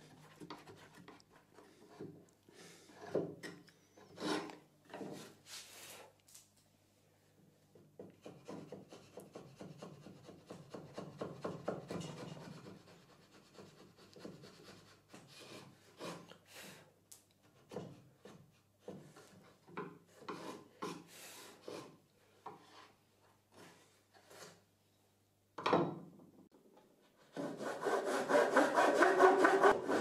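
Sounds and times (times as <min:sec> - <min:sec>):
chisel scraping wood: 0:04.0 - 0:05.4, 0:20.2 - 0:21.9.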